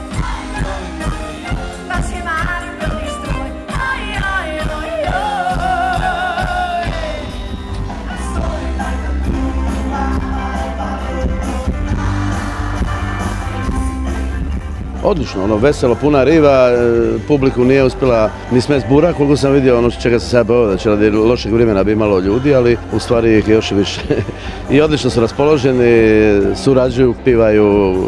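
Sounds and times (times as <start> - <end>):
woman singing with vibrato: 0.0 - 14.0
live pop-rock band: 0.0 - 28.0.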